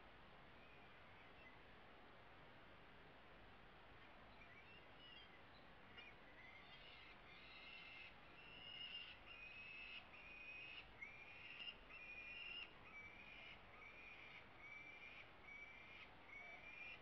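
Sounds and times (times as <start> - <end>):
falcon chicks begging calls: 6.0 - 17.0.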